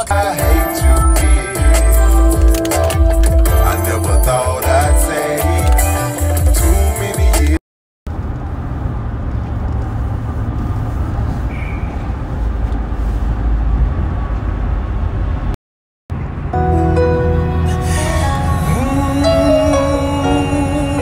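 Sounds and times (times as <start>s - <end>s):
road and engine hum in car: 8.1s - 21.0s.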